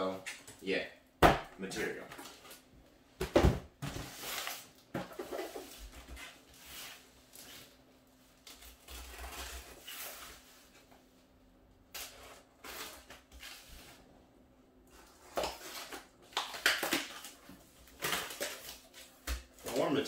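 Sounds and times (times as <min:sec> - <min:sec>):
cardboard boxes rustling and scraping: 0:03.8 - 0:07.8.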